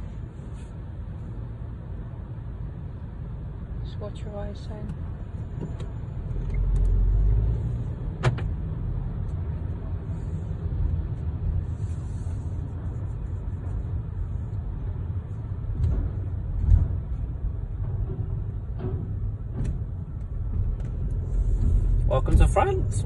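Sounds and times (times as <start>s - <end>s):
low rumble inside car cabin: 0.0s - 23.0s
low thud: 15.7s - 22.6s.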